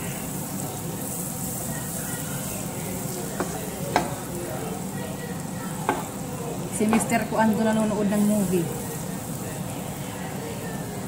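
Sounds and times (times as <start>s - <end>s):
butter sizzling in a frying pan: 0.0s - 11.0s
spatula knocking against pan: 3.4s - 4.2s, 5.8s - 6.1s, 6.8s - 7.2s.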